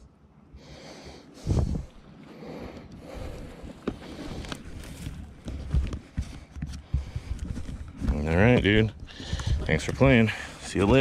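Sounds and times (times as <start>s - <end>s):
wind on microphone: 1.4s - 2.1s
microphone handling noise: 3.8s - 11.0s.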